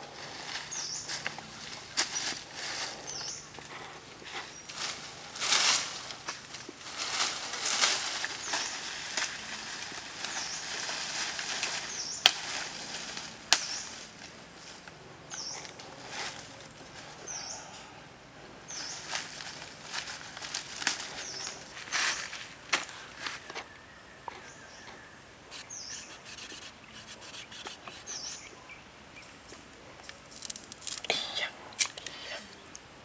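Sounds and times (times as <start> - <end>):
footsteps on dry leaves: 0.0 - 17.7, 18.7 - 24.6
leafy branches rustling: 0.0 - 33.0
bird chirping: 0.7 - 4.8, 15.3 - 15.8, 21.1 - 22.4, 23.5 - 30.5.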